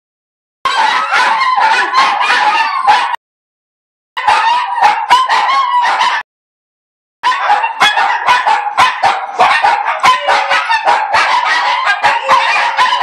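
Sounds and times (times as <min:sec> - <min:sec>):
dogs howling and yipping: 0:00.7 - 0:03.2, 0:04.2 - 0:06.2, 0:07.2 - 0:13.0.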